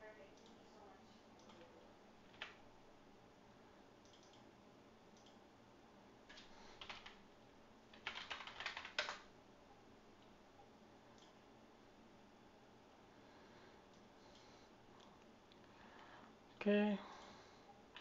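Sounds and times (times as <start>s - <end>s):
computer keyboard typing: 1.4s - 2.6s, 4.0s - 4.5s, 6.3s - 7.2s, 7.9s - 9.3s.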